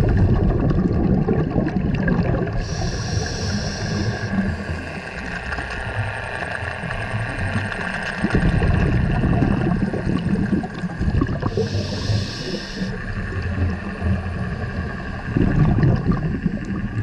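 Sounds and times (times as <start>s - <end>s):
faint hum: 0.0s - 17.0s
regulator bubbles gurgling underwater: 0.0s - 17.0s
regulator inhale hiss: 2.6s - 5.4s, 11.5s - 13.5s.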